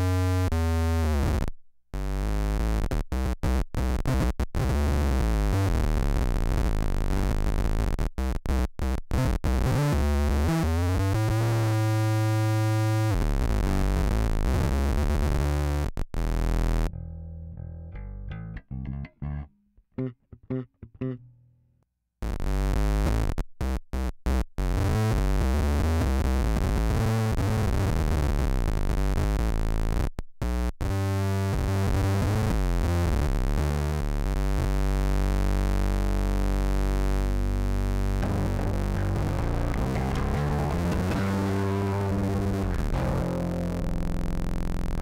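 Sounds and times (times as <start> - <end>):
synth-like guitar tone with deep bass: 3.8 - 21.6, 32.2 - 45.0
electric guitar single notes: 38.0 - 45.0.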